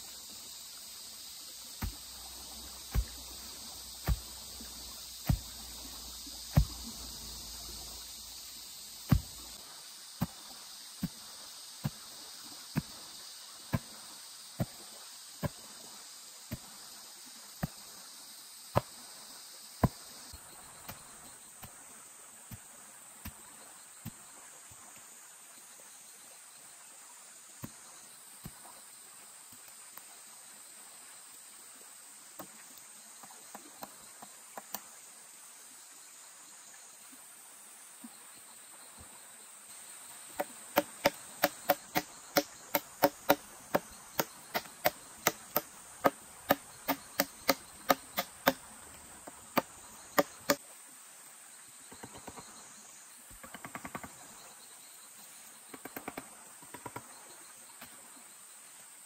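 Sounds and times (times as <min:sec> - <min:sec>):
insects chirring: 0:00.0 - 0:59.0
sharp knocks on wood: 0:04.0 - 0:04.4, 0:06.5 - 0:06.9, 0:09.1 - 0:09.4, 0:40.4 - 0:48.6.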